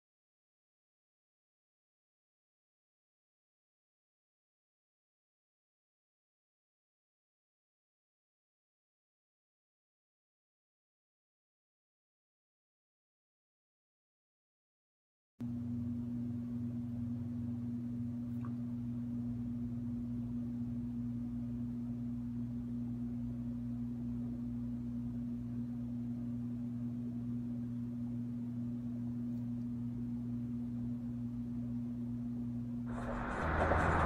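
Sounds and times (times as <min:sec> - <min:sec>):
electrical hum with low drone: 0:15.4 - 0:34.0.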